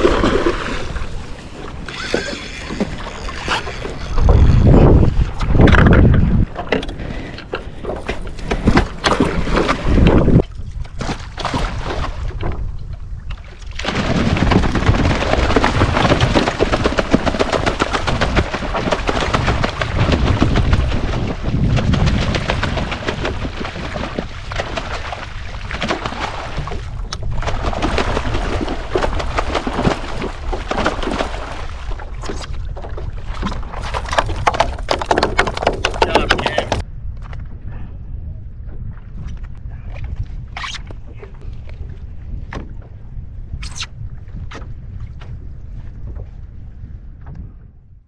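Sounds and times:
fish thrashing against kayak: 0:00.0 - 0:10.3, 0:27.4 - 0:36.8
wind noise on microphone: 0:00.0 - 0:48.0.

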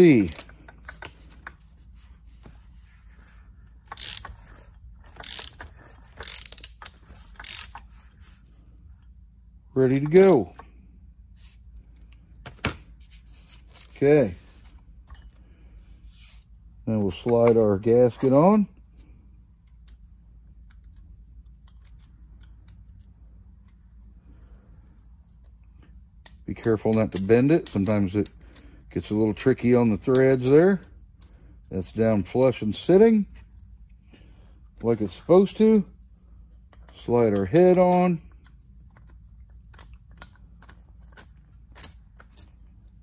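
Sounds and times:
ratchet wrench clicking: 0:03.7 - 0:07.9
small clicks and light scrapes: 0:19.0 - 0:28.7, 0:35.6 - 0:43.0.

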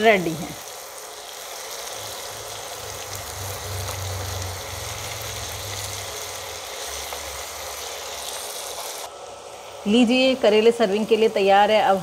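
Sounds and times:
food sizzling in oil in a pan: 0:00.0 - 0:12.0.

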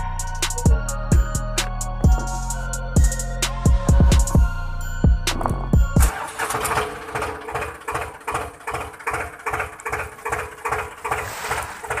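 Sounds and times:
toy tractor engine idling: 0:05.3 - 0:12.0.

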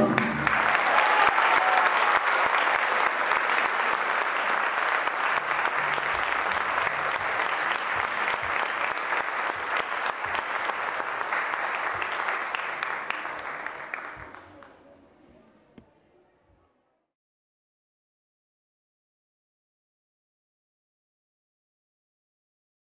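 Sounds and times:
audience applauding: 0:00.0 - 0:14.8.

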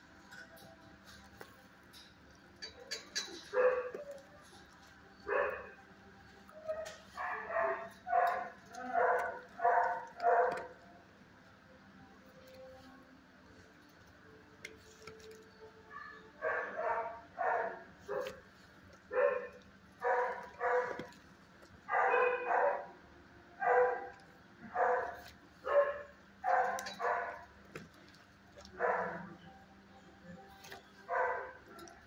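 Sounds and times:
dog barking: 0:03.4 - 0:04.2, 0:05.2 - 0:05.8, 0:06.6 - 0:10.8, 0:15.9 - 0:18.4, 0:19.1 - 0:21.1, 0:21.9 - 0:22.9, 0:23.6 - 0:27.5, 0:28.7 - 0:29.4, 0:31.1 - 0:32.0.

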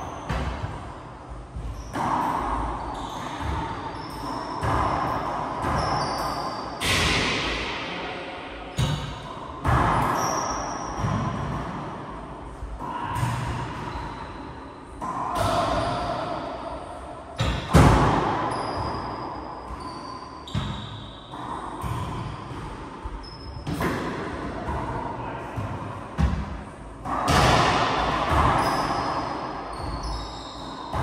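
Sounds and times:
sneaker squeaks: 0:00.0 - 0:00.8, 0:01.5 - 0:07.0, 0:08.7 - 0:11.5, 0:12.9 - 0:16.8, 0:17.4 - 0:24.0, 0:28.0 - 0:31.0
ball smacking racquets and walls: 0:00.2 - 0:00.9, 0:01.5 - 0:07.9, 0:08.7 - 0:14.3, 0:14.9 - 0:16.5, 0:17.3 - 0:31.0.

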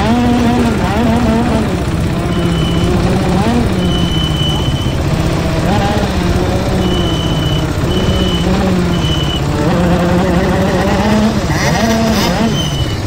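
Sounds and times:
kart engine running hard: 0:00.0 - 0:13.0
high electronic beep: 0:02.2 - 0:10.6.

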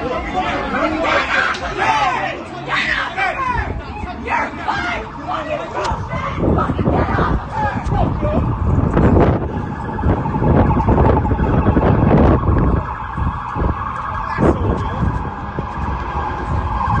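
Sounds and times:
emergency vehicle siren: 0:00.0 - 0:17.0
wind noise on microphone: 0:05.6 - 0:17.0.

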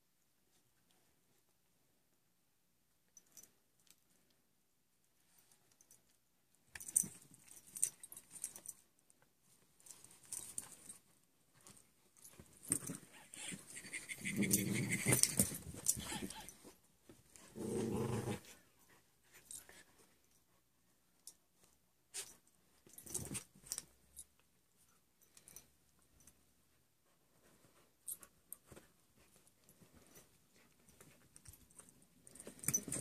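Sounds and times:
dogs scuffling and rustling: 0:09.4 - 0:20.4, 0:21.5 - 0:24.0, 0:27.1 - 0:33.0
dog growling: 0:13.4 - 0:15.3, 0:17.5 - 0:18.5.

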